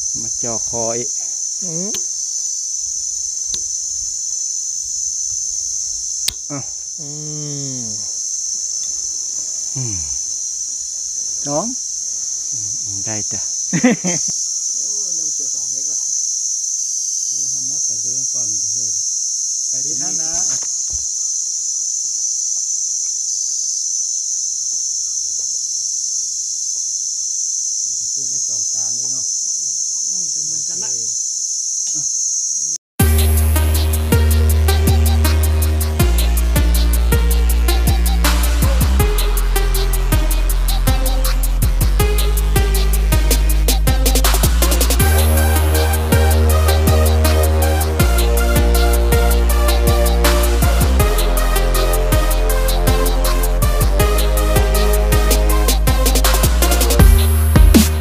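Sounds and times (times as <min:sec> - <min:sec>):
men talking quietly: 0:00.0 - 0:02.1, 0:06.4 - 0:08.2, 0:08.8 - 0:10.3, 0:12.8 - 0:16.2, 0:17.3 - 0:19.0, 0:19.7 - 0:21.3, 0:28.0 - 0:31.2
insects droning: 0:00.0 - 0:58.0.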